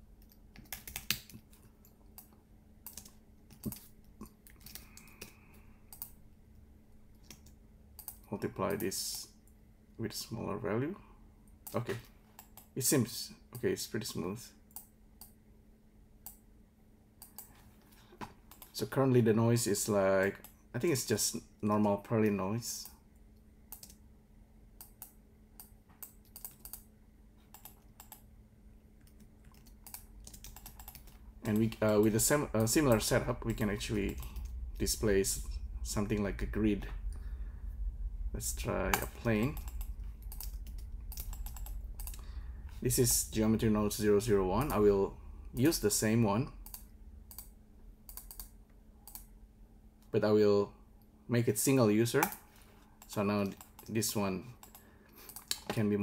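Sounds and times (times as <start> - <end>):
faint steady hum: 0.0 - 56.0
computer keyboard typing: 0.2 - 1.6, 2.2 - 3.9, 23.7 - 24.0, 24.8 - 26.9, 27.5 - 28.2, 29.0 - 31.8, 38.9 - 42.2, 48.1 - 49.2, 54.6 - 55.7.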